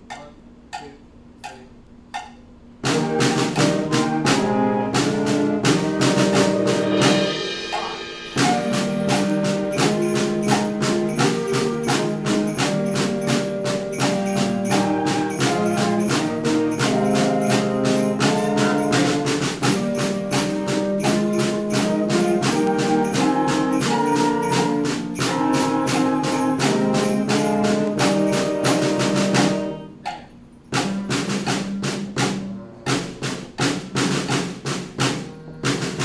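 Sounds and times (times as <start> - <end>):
count-in clicks: 0.0 - 2.5, 30.0 - 31.8
school band playing a march: 2.8 - 36.0.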